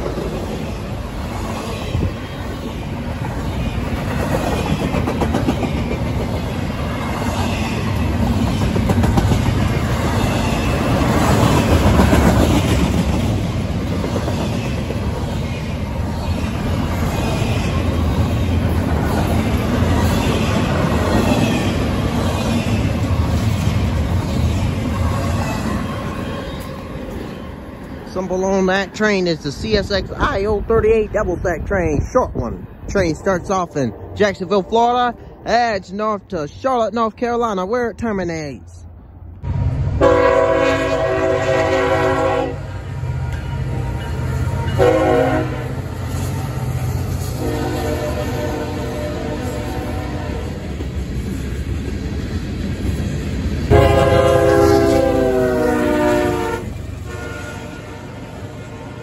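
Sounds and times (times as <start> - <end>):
steel train wheels on rails: 0.0 - 37.8, 39.4 - 59.0
train air horn blasts: 40.0 - 42.7, 44.5 - 45.8, 47.4 - 50.6, 53.7 - 59.0.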